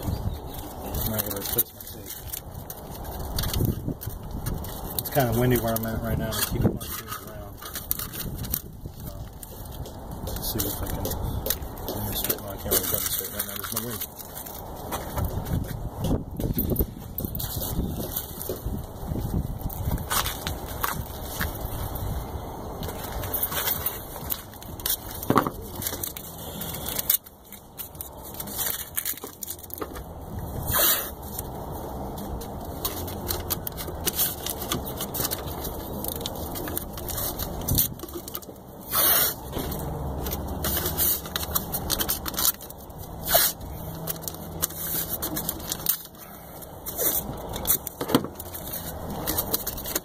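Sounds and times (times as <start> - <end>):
tape ripping off roll: 30.6 - 31.5, 32.8 - 46.2.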